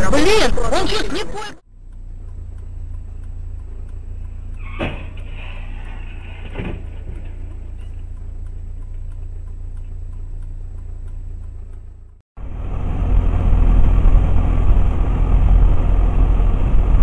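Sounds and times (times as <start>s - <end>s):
car driving on highway: 0.0s - 17.0s
car engine hum: 0.0s - 17.0s
faint regular ticking: 1.6s - 6.0s, 6.8s - 12.2s.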